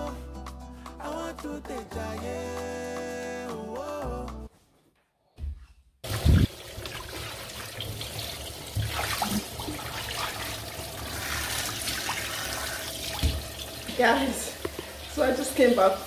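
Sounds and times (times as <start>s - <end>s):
tap running into bathtub: 6.1s - 10.5s, 11.8s - 15.9s.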